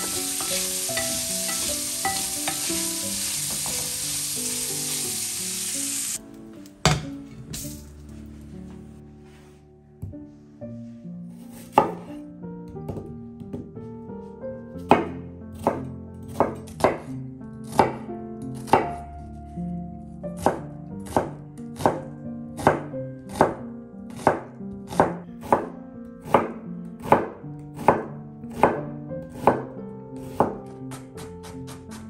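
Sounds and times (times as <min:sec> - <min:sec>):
knife chopping on wooden board: 0:03.5 - 0:03.9, 0:11.5 - 0:12.2, 0:20.4 - 0:22.0, 0:22.6 - 0:29.6, 0:30.2 - 0:32.0.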